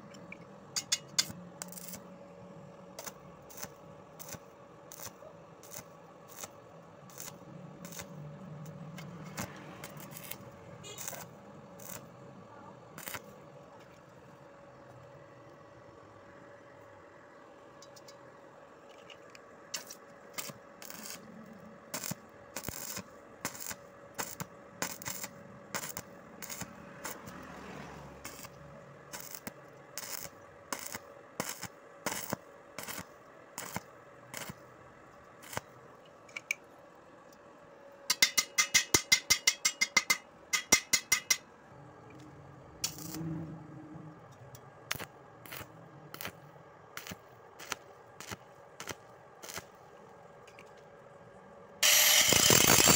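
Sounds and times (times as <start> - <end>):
arc welding crackling pops: 0.7 - 2.1, 2.9 - 12.1, 13.0 - 13.3, 19.7 - 21.3, 21.9 - 27.3, 28.2 - 34.7, 35.4 - 35.8, 42.8 - 43.2, 44.9 - 49.8, 51.8 - 52.9.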